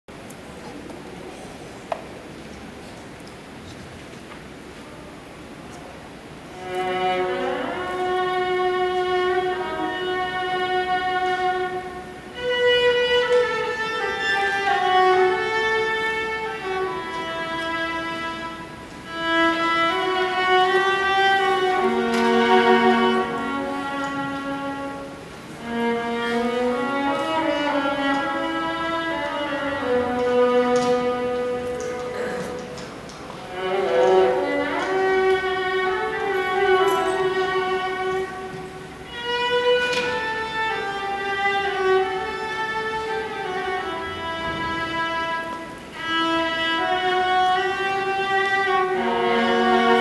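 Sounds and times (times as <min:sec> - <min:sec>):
solo violin melody: 0:06.4 - 0:50.0.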